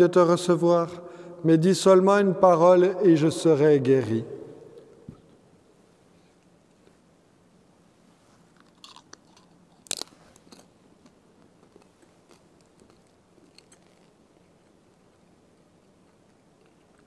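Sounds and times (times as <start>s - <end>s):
crisp chewing clicks: 8.6s - 17.0s.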